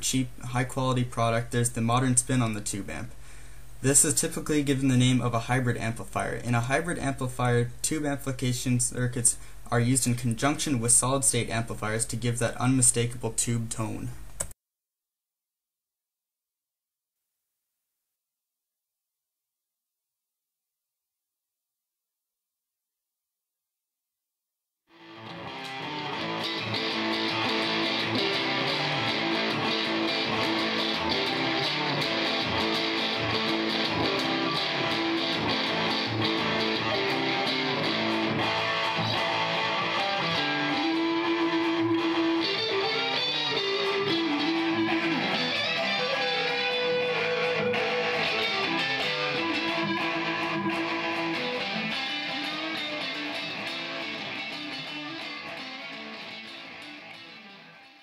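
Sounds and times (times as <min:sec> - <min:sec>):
electric guitars playing: 0:25.0 - 0:58.0.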